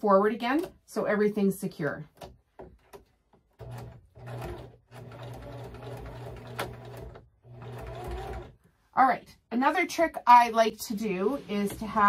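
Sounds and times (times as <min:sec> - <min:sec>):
sewing machine stitching: 0:03.6 - 0:08.6.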